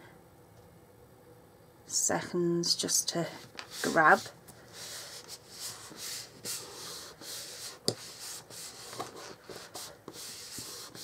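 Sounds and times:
hands rubbing paper card: 0:03.6 - 0:11.0.

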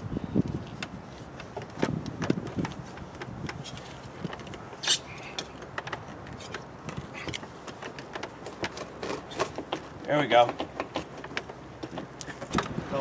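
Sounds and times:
sharp rasp: 0:04.8 - 0:05.4.

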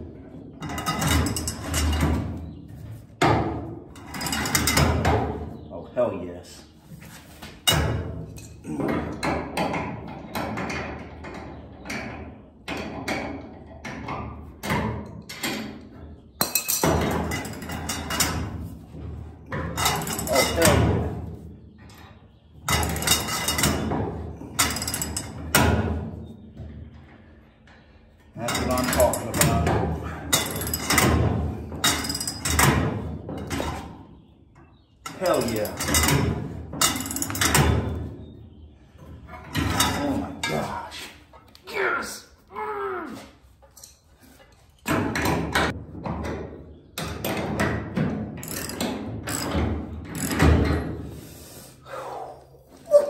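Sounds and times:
sharp metallic clanks and rattles: 0:00.0 - 0:05.7, 0:07.5 - 0:41.5, 0:43.6 - 0:51.2
metal press clicking and knocking: 0:07.6 - 0:21.2, 0:28.4 - 0:34.0, 0:34.6 - 0:38.1, 0:44.8 - 0:51.0.

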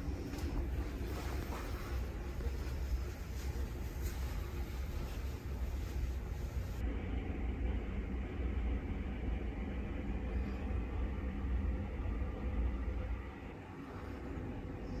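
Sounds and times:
low room rumble with hiss: 0:00.0 - 0:15.0.

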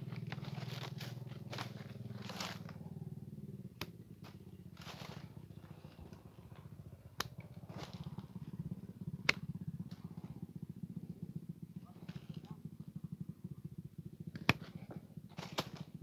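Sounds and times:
branches rustling: 0:00.0 - 0:03.0, 0:03.8 - 0:08.6
steady low hum: 0:00.0 - 0:16.0
pruning shears snipping: 0:15.3 - 0:15.9.

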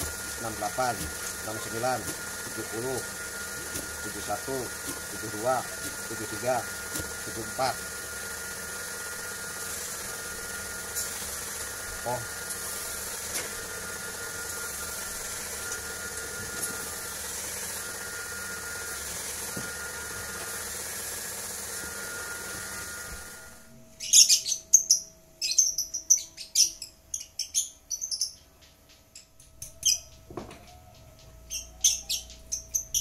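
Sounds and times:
small birds chirping: 0:24.0 - 0:30.2.

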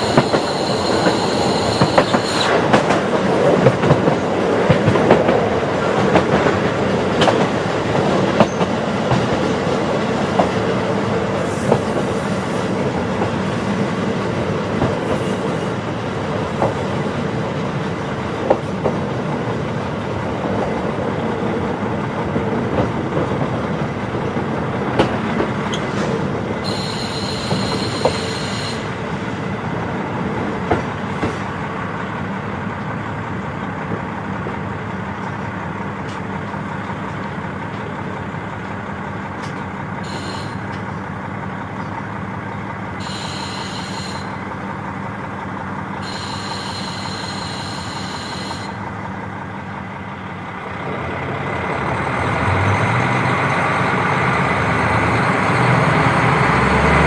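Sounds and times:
wheels rumbling on rails: 0:00.0 - 0:57.0
diesel engine droning: 0:25.6 - 0:30.3, 0:33.0 - 0:57.0.

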